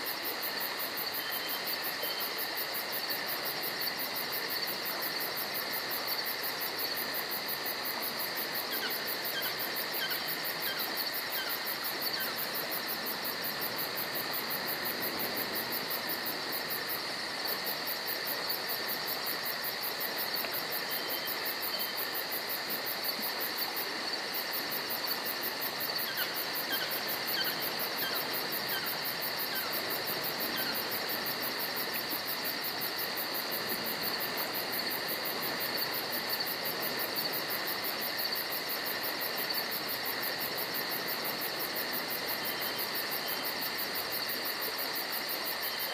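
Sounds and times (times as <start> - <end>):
crickets and insects trilling: 0.0 - 45.9.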